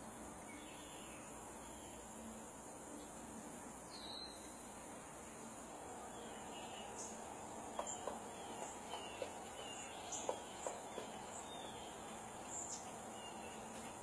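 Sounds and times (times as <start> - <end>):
insects chorus: 0.0 - 14.0
woodpecker knocking on wood: 7.7 - 11.4.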